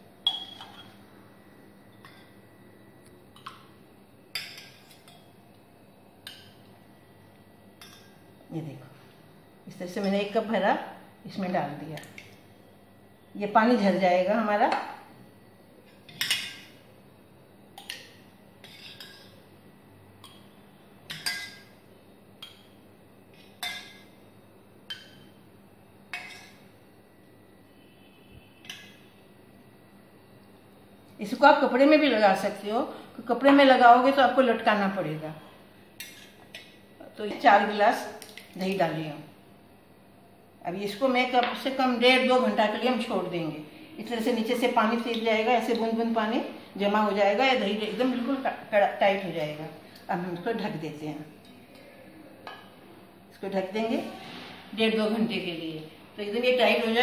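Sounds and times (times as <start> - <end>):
spoon clinking against steel bowl: 0.2 - 1.0, 21.1 - 21.7.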